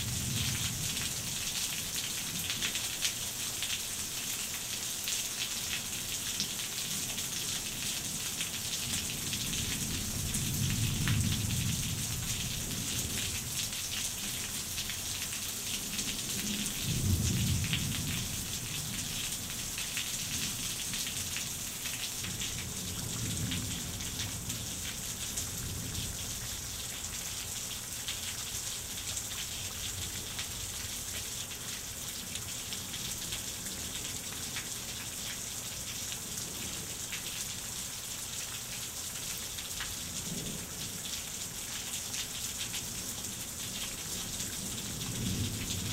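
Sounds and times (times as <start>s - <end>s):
heavy rain: 0.0s - 45.9s.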